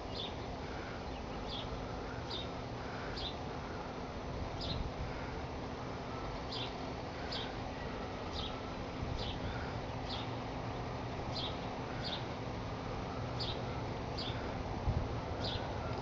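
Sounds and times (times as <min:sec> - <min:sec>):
outdoor background noise: 0:00.0 - 0:16.0
bird chirping: 0:11.3 - 0:12.3, 0:13.4 - 0:14.5, 0:15.4 - 0:15.7.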